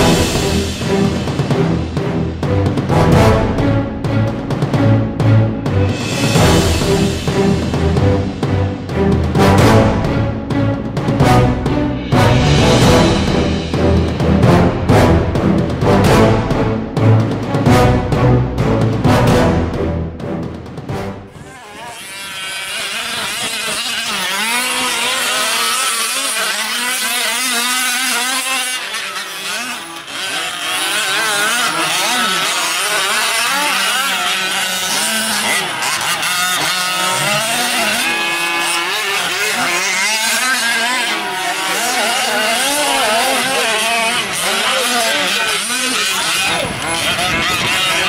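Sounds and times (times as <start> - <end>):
small two-stroke engines buzzing: 21.2 - 48.0.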